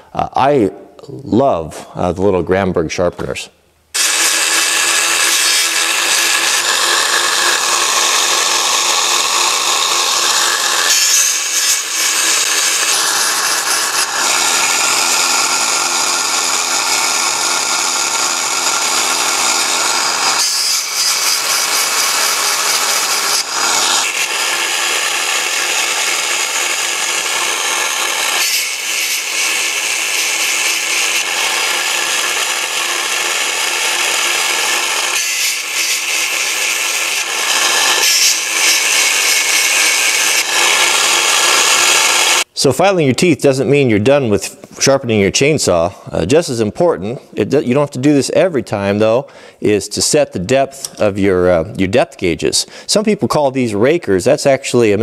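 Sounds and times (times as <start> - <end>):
electric motor hum: 4.0 - 42.5
grinding stone rasping on chain: 4.0 - 42.5.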